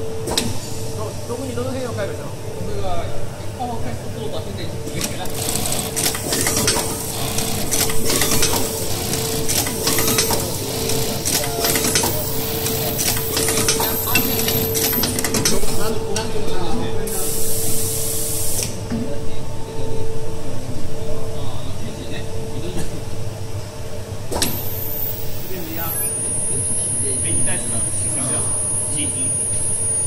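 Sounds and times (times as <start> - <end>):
steady machine hum: 0.0 - 30.0
sewing machine clattering and clicking: 5.0 - 15.6.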